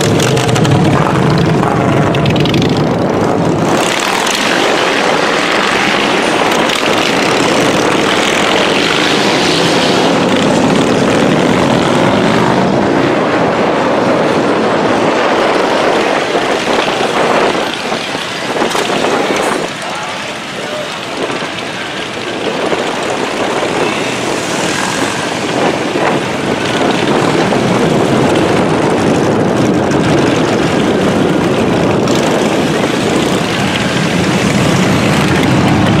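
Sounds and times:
motorcycle engines droning: 0:00.0 - 0:36.0.

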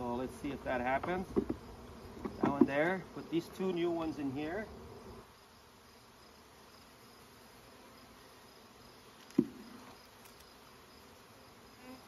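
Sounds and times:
honeybees humming: 0:00.0 - 0:12.0.

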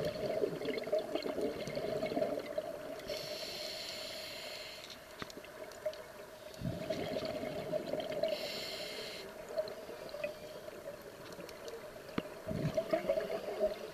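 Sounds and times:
exhaled bubbles gurgling: 0:00.0 - 0:03.2, 0:06.5 - 0:08.6, 0:09.4 - 0:13.9
regulator inhale hiss: 0:03.0 - 0:05.1, 0:08.2 - 0:09.6.

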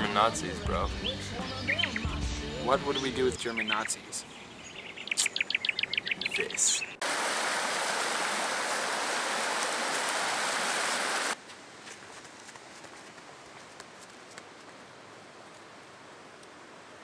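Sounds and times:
quiet outdoor hiss: 0:00.0 - 0:17.0
stream water rushing over rocks: 0:07.0 - 0:11.4.

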